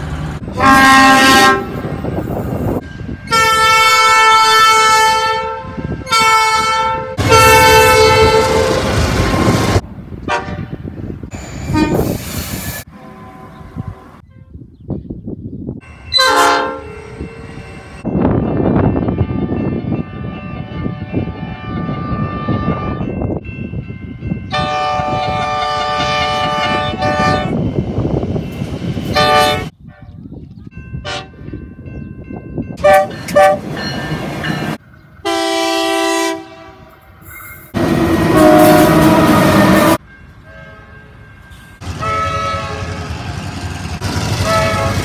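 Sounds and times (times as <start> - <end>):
passing trains rumbling: 0.0 - 45.0
train horn blasts: 0.5 - 1.9, 3.3 - 9.6, 10.2 - 10.9, 11.7 - 12.1, 16.1 - 17.3, 24.5 - 27.6, 29.1 - 30.2, 31.0 - 31.4, 32.8 - 33.7, 35.2 - 37.1, 37.8 - 41.2, 41.8 - 43.2, 44.3 - 45.0.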